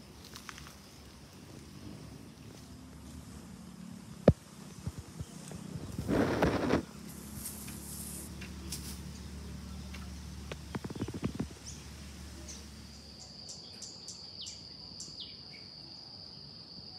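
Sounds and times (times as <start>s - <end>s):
birds chirping: 0.0s - 15.8s
insect high-pitched drone: 0.0s - 16.9s.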